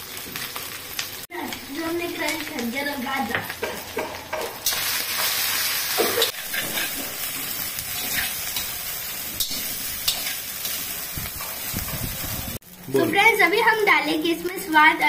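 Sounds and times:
oil sizzling in a pan: 0:00.0 - 0:15.0
spatula scraping a pan: 0:03.6 - 0:12.1.

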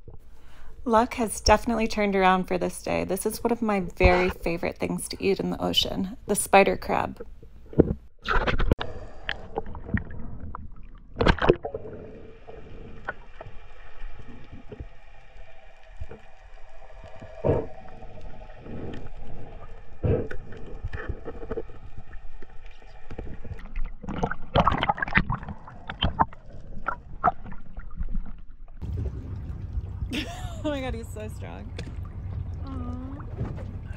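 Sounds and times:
underwater knocks and scrapes: 0:07.2 - 0:30.1, 0:31.4 - 0:33.9.

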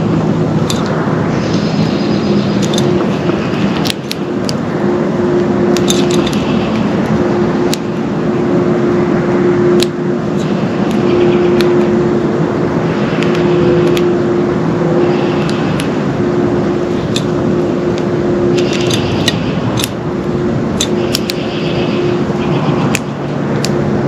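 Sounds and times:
loud rushing noise: 0:00.0 - 0:24.0
low hum: 0:00.0 - 0:24.0
sharp clicks: 0:02.5 - 0:04.6, 0:13.2 - 0:14.1, 0:17.9 - 0:20.0, 0:20.8 - 0:21.5.

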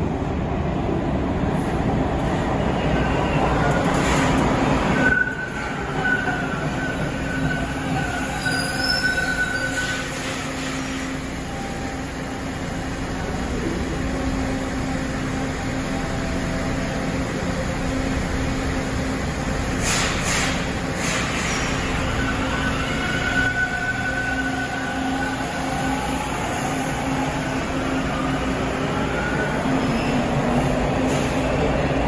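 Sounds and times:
low train hum: 0:00.0 - 0:32.0
subway train braking: 0:00.0 - 0:32.0
high wheel squeal: 0:04.9 - 0:10.7, 0:21.4 - 0:25.5.

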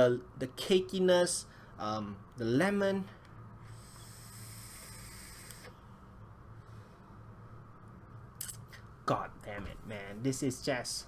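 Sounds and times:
breathy exhale hiss: 0:03.6 - 0:05.8.

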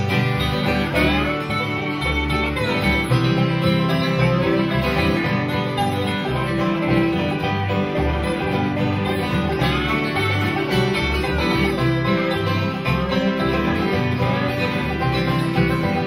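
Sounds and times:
acoustic guitars strumming: 0:00.0 - 0:16.0
banjo picking: 0:00.0 - 0:16.0
bass beat: 0:00.0 - 0:16.0.

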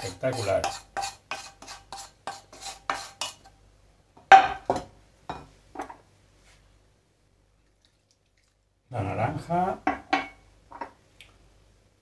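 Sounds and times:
wooden spoon scraping frying pan: 0:00.0 - 0:03.6
pan knocking on stone worktop: 0:04.2 - 0:06.0.

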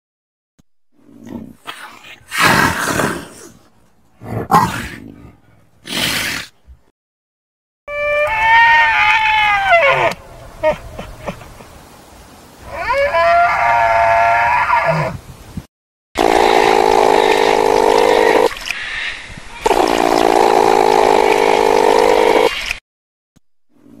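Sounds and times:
elk call: 0:07.9 - 0:10.8
harsh noisy bugling: 0:16.2 - 0:18.6, 0:19.6 - 0:22.6.

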